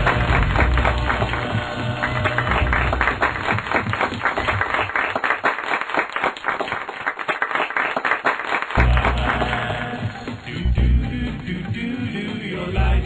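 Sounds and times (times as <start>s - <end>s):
cartoon soundtrack music: 0.0s - 3.6s, 8.8s - 13.0s
applause: 0.0s - 10.3s.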